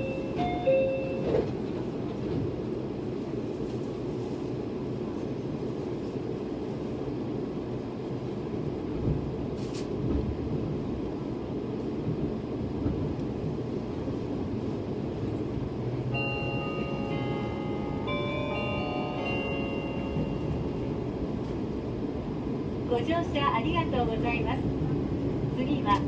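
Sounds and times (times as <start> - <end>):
train clunks: 0.0 - 2.8, 8.9 - 10.8, 12.0 - 13.6, 16.1 - 21.8, 25.6 - 26.0
train car rumble and rattle: 0.0 - 26.0
tune of ringing tones: 16.1 - 20.8.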